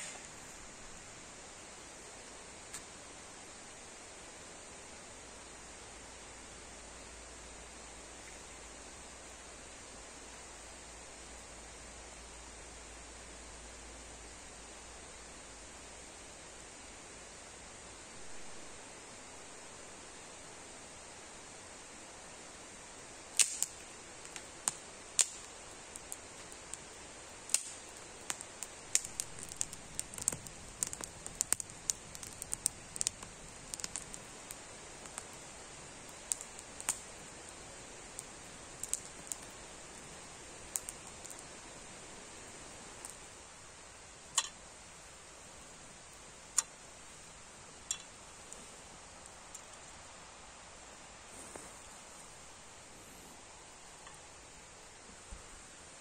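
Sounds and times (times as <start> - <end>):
sharp fire pops: 0.0 - 0.4, 23.3 - 43.3, 44.2 - 44.6, 51.3 - 52.3
campfire crackling: 0.0 - 56.0
faint steady hiss: 0.0 - 56.0
twigs clicking into metal kettle: 23.4 - 26.8, 27.5 - 35.4, 44.3 - 44.6, 47.9 - 48.2.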